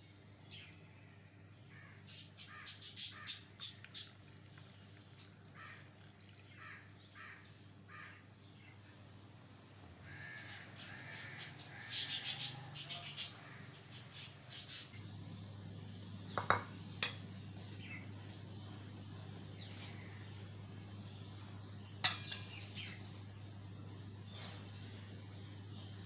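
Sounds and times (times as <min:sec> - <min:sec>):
birds harsh calls: 0:01.6 - 0:04.4, 0:05.1 - 0:08.8, 0:10.0 - 0:26.0
glassware set on counter: 0:16.4 - 0:17.2, 0:22.0 - 0:22.4.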